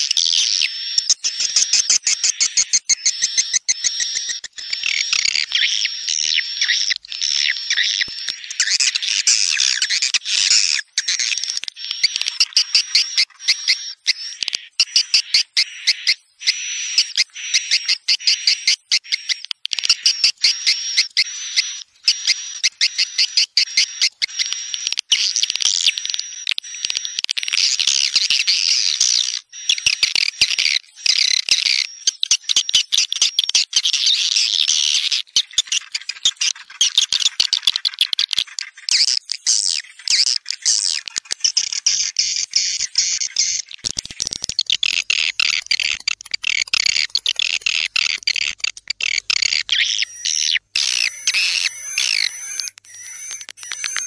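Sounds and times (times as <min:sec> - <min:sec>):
high-pitched bird twittering: 0:00.0 - 0:54.0.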